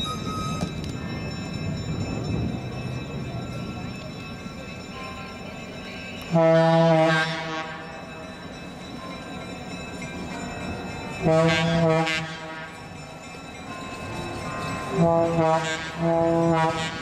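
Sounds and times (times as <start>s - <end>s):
train noise: 0.0s - 17.0s
locomotive air horn blasts: 6.3s - 7.8s, 11.2s - 12.8s, 15.0s - 17.0s.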